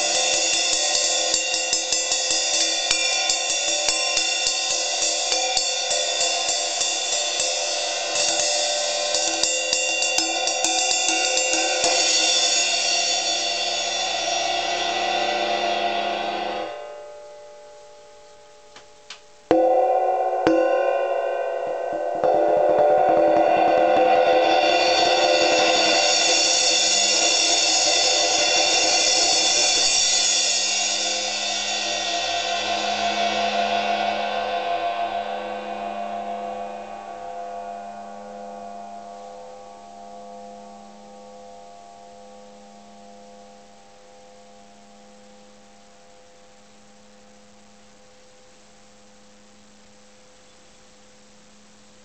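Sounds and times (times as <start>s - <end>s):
crash cymbal roll with mallets: 0.0s - 18.7s, 19.5s - 51.9s.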